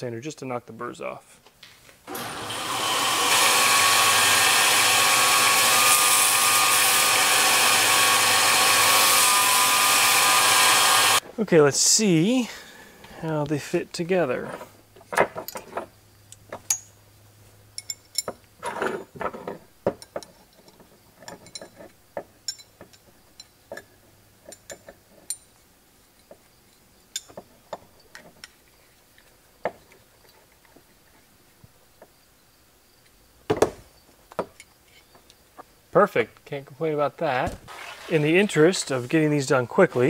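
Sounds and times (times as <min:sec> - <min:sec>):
small metallic clicks and clinks: 0:15.1 - 0:17.0, 0:17.7 - 0:18.6, 0:20.0 - 0:30.8.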